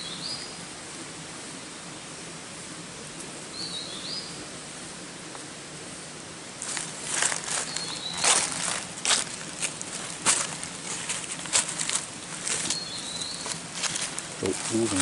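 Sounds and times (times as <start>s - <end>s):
forest background hiss: 0.0s - 15.0s
dry leaves rustling: 6.6s - 15.0s.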